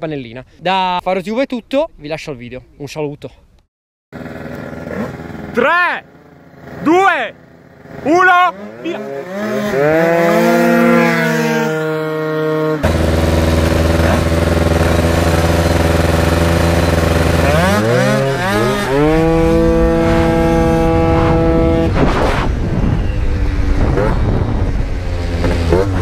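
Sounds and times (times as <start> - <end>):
scooter engine racing: 4.2 - 26.0
wind noise: 18.6 - 26.0.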